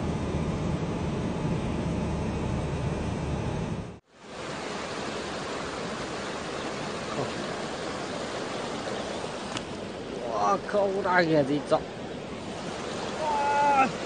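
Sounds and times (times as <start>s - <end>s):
vehicle road rumble: 0.0s - 4.0s
river rushing: 4.1s - 14.0s.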